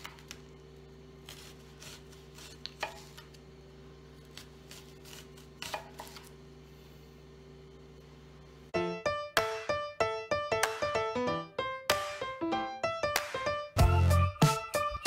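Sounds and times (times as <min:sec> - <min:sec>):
faint steady hum: 0:00.0 - 0:08.9.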